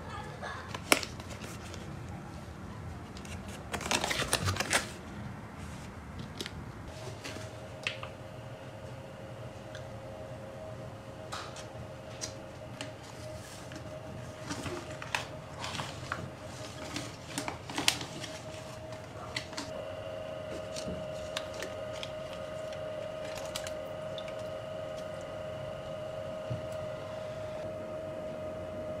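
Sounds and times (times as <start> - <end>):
immersion circulator humming: 0.0 - 29.0
plastic bag crinkling: 14.4 - 19.7, 20.7 - 24.4.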